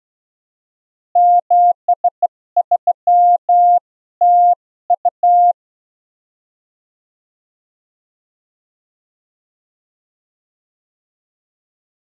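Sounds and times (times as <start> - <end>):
morse code beeping tone: 1.2 - 5.6.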